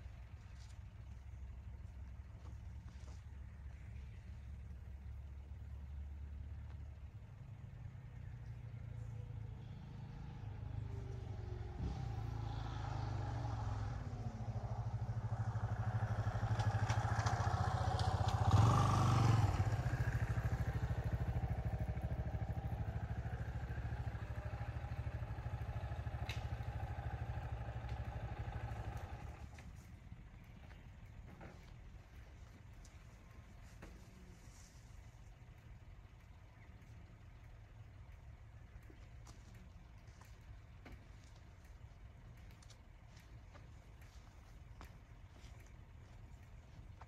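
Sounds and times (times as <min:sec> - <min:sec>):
vehicle engine running: 0:00.0 - 0:47.0.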